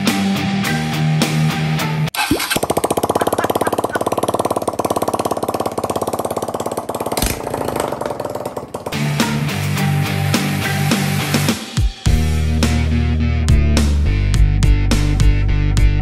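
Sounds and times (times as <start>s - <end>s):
music: 0.0s - 2.1s, 8.9s - 16.0s
motorcycle engine idling: 2.2s - 10.6s.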